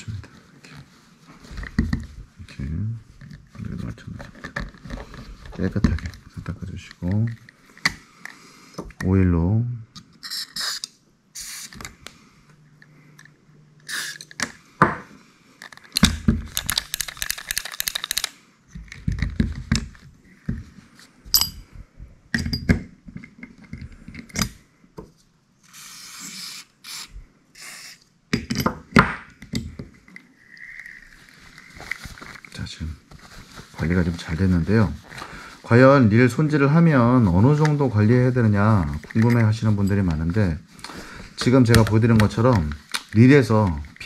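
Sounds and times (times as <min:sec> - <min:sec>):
aerosol oil spray hiss: 0:25.7 - 0:28.0.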